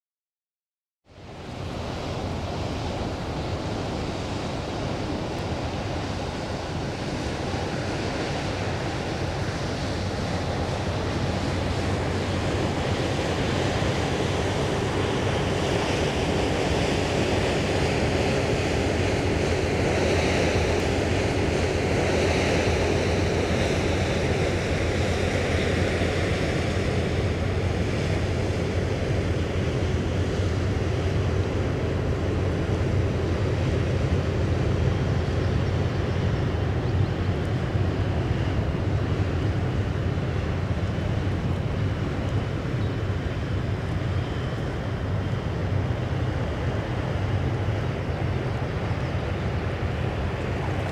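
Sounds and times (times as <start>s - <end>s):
water rushing: 1.1s - 25.3s, 37.2s - 50.9s
wind on microphone: 1.2s - 50.9s.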